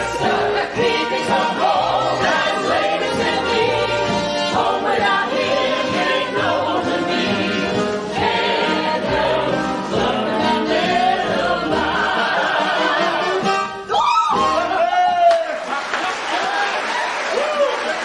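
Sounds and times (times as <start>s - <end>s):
cast singing as an ensemble: 0.0s - 13.7s
musical accompaniment: 0.0s - 15.2s.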